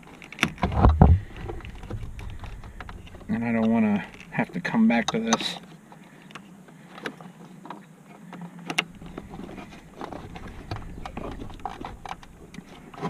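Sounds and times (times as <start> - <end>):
low rumble: 0.6 - 4.4.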